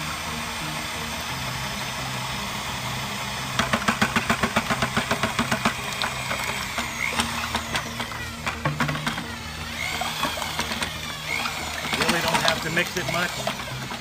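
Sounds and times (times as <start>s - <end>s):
background music: 0.0s - 14.0s
metal can knocking against plastic pail: 3.6s - 9.3s.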